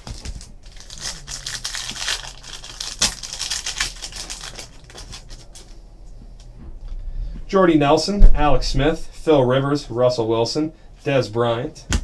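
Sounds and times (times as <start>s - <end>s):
foil wrapper crinkling: 0.0s - 5.8s.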